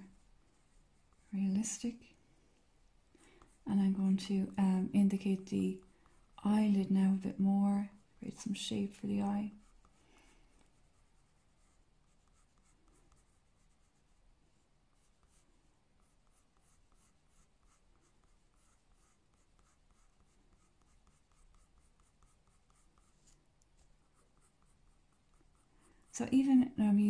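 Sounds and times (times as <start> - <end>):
pencil scratching on paper: 7.9 - 10.0, 10.7 - 25.8.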